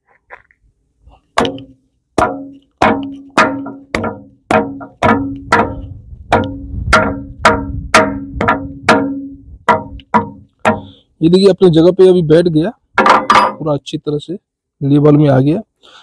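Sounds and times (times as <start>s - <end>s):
hammer knocking on metal: 1.4s - 10.9s.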